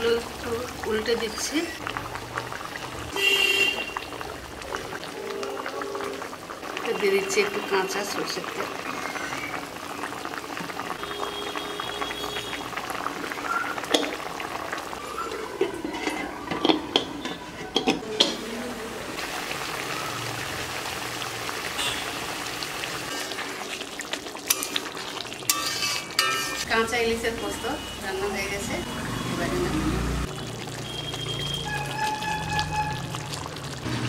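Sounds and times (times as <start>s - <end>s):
gravy bubbling in a wok: 0.0s - 34.0s
metal lid clanks: 25.5s - 26.6s.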